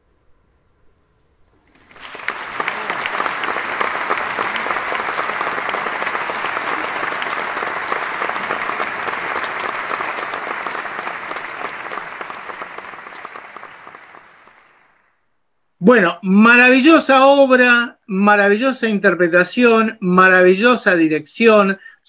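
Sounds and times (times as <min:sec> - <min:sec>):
audience applauding: 0:01.7 - 0:15.2.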